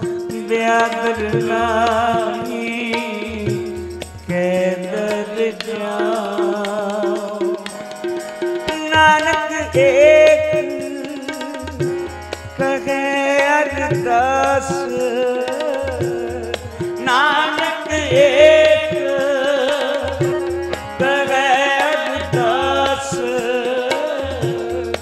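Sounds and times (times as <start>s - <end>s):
held harmonium chords: 0.0s - 25.0s
tabla rhythm: 0.0s - 25.0s
person singing melodic phrases: 8.6s - 25.0s.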